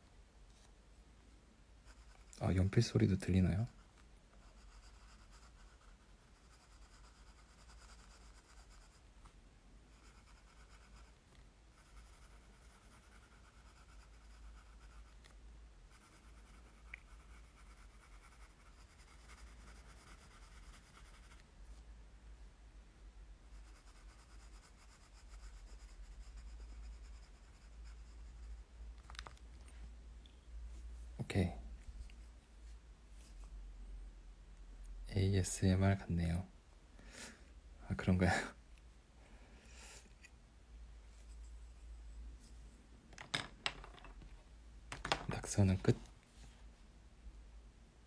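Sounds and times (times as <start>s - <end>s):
pencil scratching on paper: 1.8s - 2.6s, 4.4s - 9.1s, 9.9s - 15.3s, 15.9s - 21.4s, 23.5s - 28.7s.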